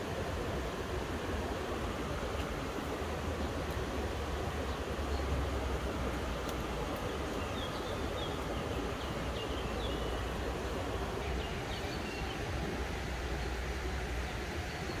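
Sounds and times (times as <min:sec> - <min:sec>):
river rushing: 0:00.0 - 0:15.0.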